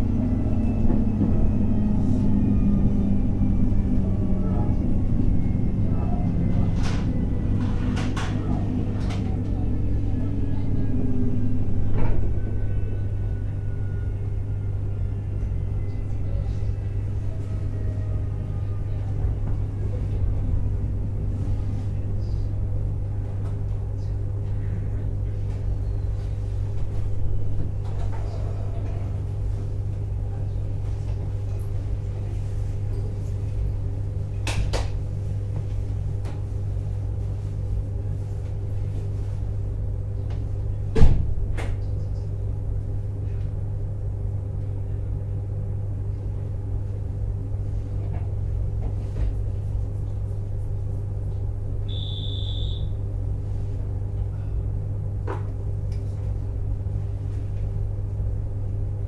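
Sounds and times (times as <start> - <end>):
faint falling whines: 0.0 - 22.7, 51.8 - 53.2
steady hum: 0.0 - 59.0
train running rumble: 0.0 - 59.0.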